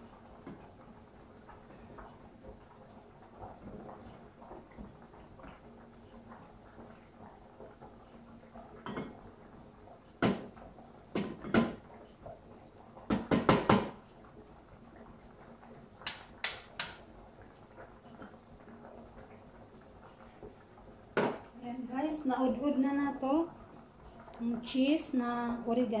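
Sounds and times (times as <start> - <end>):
kitchenware knocking and clinking: 13.1 - 13.9, 21.2 - 21.4.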